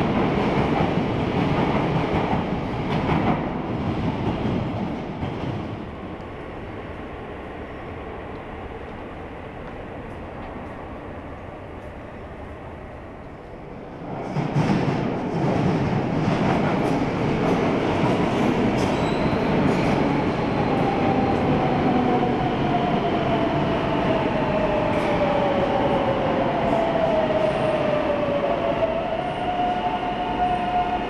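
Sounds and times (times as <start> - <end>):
falling whine of train: 0.0 - 31.0
train braking to a stop: 18.4 - 21.2.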